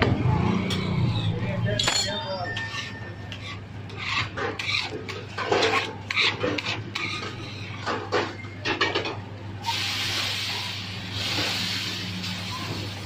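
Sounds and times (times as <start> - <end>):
metal utensils clinking: 1.7 - 3.6
griddle sizzling hiss: 9.6 - 13.0.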